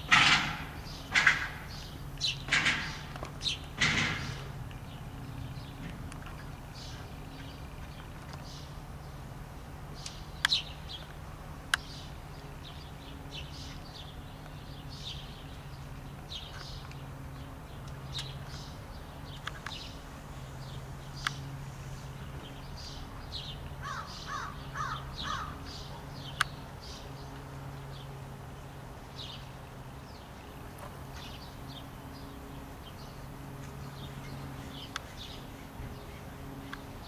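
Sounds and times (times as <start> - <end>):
songbirds chirping: 0.0 - 37.0
steady low hum: 0.0 - 37.0
crow cawing: 23.8 - 25.6.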